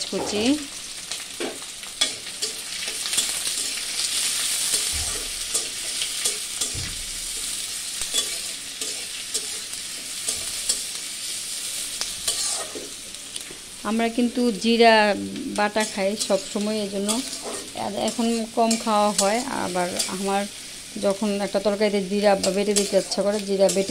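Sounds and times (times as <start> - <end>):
onions sizzling in hot oil: 0.0 - 23.9
metal spatula scraping a pan: 1.4 - 11.0, 12.0 - 13.0, 15.6 - 20.4, 22.3 - 23.9.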